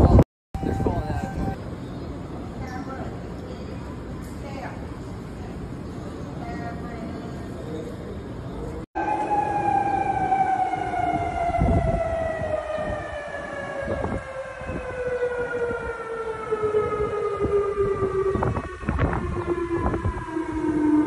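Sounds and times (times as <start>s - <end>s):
warning siren sliding down: 0.0s - 1.6s, 9.0s - 21.0s.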